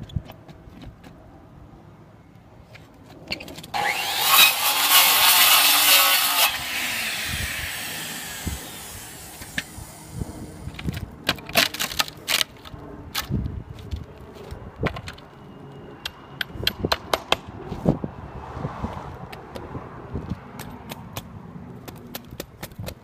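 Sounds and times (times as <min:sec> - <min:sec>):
circular saw cutting wood: 0:03.7 - 0:10.8
saw blade spinning down: 0:03.8 - 0:10.6.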